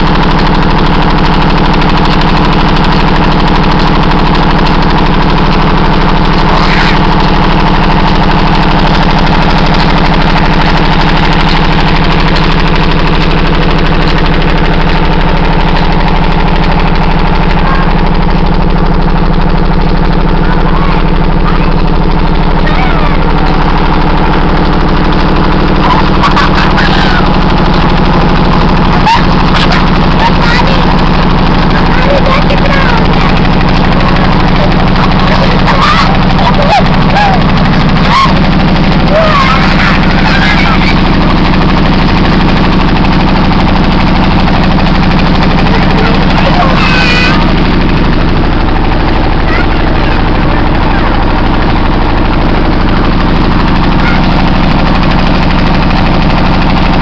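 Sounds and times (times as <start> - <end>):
pump engine running: 0.0 - 57.0
water gushing into tank: 0.0 - 57.0.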